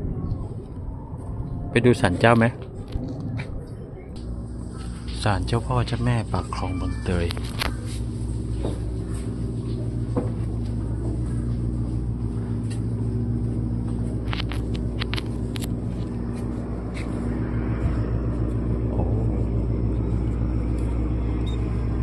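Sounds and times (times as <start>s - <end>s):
boat engine drone: 0.0s - 22.0s.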